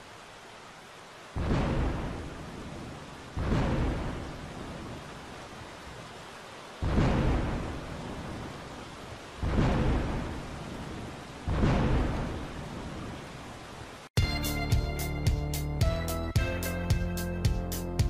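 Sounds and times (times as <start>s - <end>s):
steady rain: 0.0s - 18.0s
thunderclaps rumbling: 1.4s - 5.3s, 6.8s - 13.3s.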